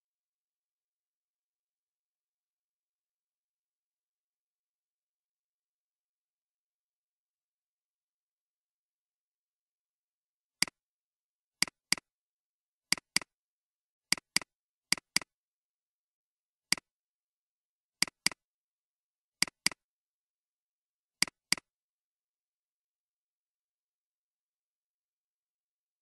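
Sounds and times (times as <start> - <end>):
computer mouse clicks: 11.6 - 12.1, 12.9 - 13.4, 14.1 - 15.3, 16.7 - 16.9, 18.0 - 18.4, 19.4 - 19.8, 21.2 - 21.7.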